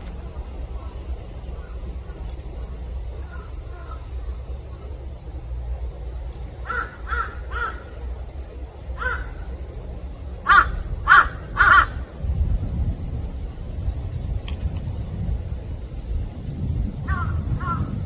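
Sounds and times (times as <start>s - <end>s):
steady low rumble: 0.0s - 18.0s
crow cawing: 3.2s - 4.2s, 6.6s - 8.1s, 9.0s - 9.6s, 10.4s - 12.1s, 17.1s - 17.9s.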